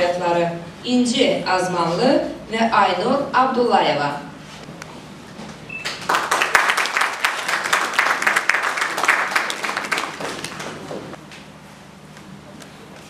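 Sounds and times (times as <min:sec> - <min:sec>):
audience applauding: 0:05.8 - 0:11.2.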